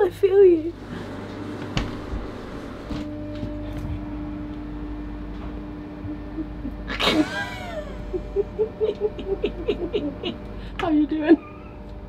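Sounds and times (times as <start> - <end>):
steady hum: 0.0 - 12.0
woman laughing: 6.1 - 11.8.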